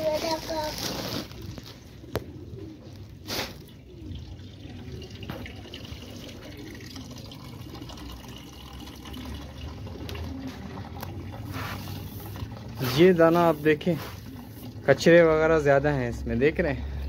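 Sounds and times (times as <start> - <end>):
pigeons cooing: 0.0 - 17.0
pigeons splashing in water: 3.2 - 14.9.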